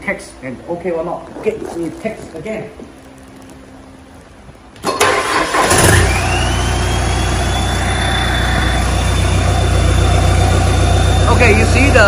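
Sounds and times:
engine starter cranking: 4.8s - 9.0s
diesel engine idling: 4.9s - 12.0s
high whine: 5.6s - 12.0s.

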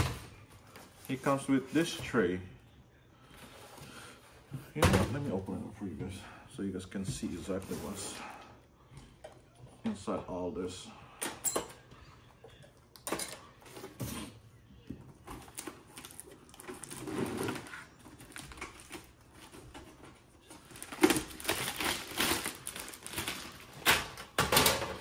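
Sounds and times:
packaging rustling: 15.3s - 24.4s.

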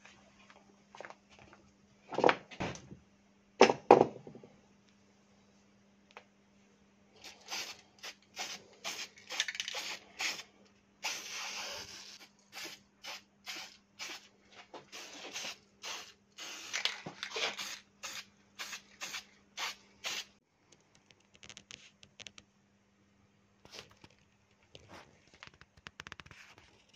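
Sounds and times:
spray paint can hissing: 7.2s - 10.4s, 11.0s - 14.3s, 14.9s - 20.4s.

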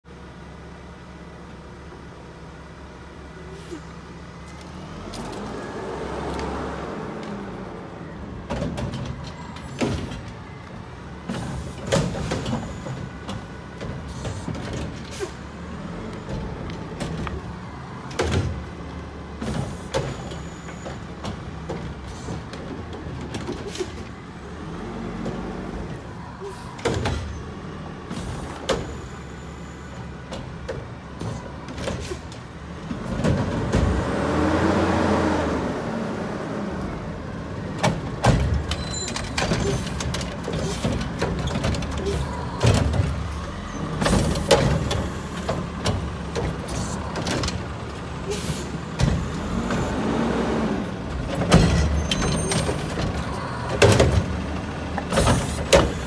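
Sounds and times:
garbage truck engine revving: 32.7s - 56.0s.

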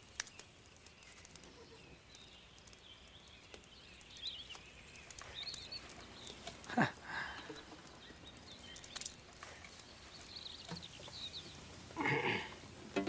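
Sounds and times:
faint bird chirps: 0.0s - 12.6s
loud breathy noise: 6.6s - 7.9s.

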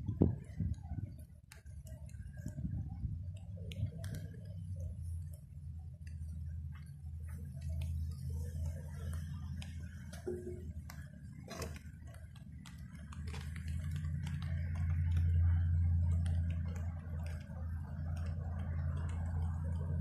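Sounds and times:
wind buffeting microphone: 0.0s - 4.4s.

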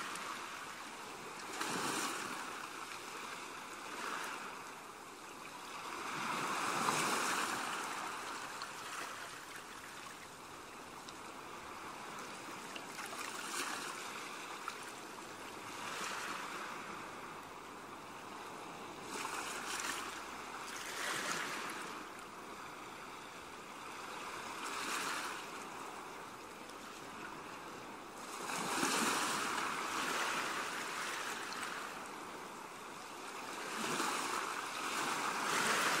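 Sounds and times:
ocean waves washing in: 0.0s - 10.2s.

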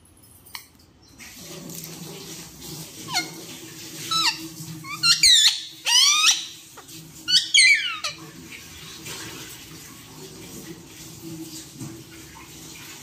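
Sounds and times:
parrot giving harsh calls: 3.0s - 3.4s, 4.0s - 8.2s.

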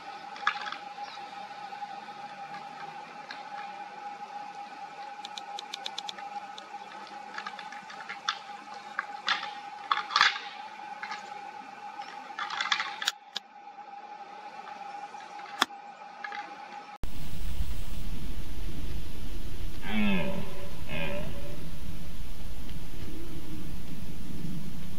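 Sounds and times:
thin whine: 0.0s - 24.9s
antlers clashing: 6.3s - 13.3s.

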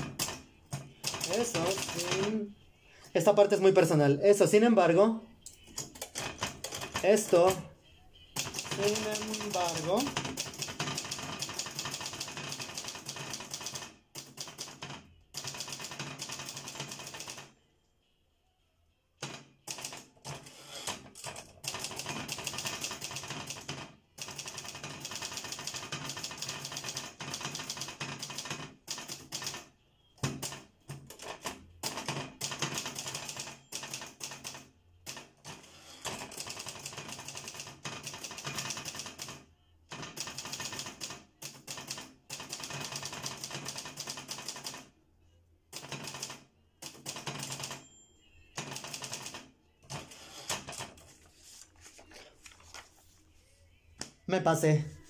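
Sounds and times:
fast typing on keyboard: 0.0s - 2.4s, 5.7s - 7.6s, 8.4s - 17.5s, 19.2s - 44.9s, 45.8s - 47.8s, 48.6s - 51.0s.

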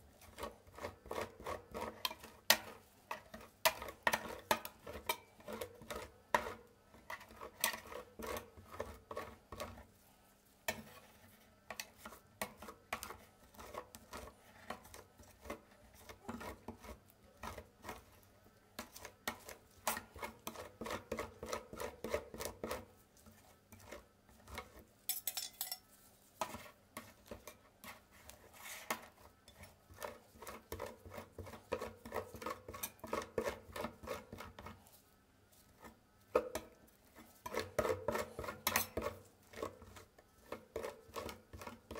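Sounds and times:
spatulas scraping on steel plate: 37.3s - 41.9s.

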